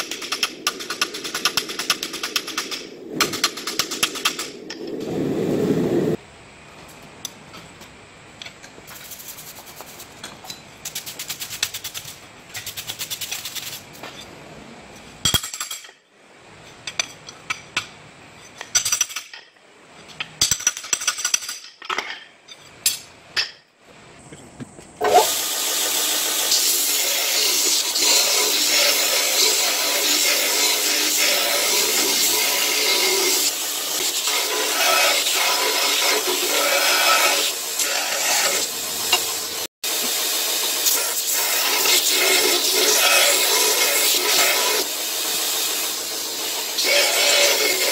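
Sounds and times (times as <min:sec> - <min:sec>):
rapid scratching: 0:10.8 - 0:13.9
belt grinder grinding steel: 0:25.0 - 0:39.6, 0:40.8 - 0:47.9.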